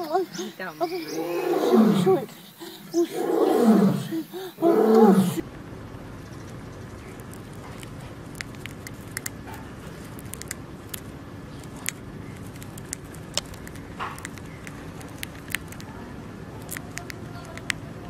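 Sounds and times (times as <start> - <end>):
hamster nibbling food: 6.9 - 18.0.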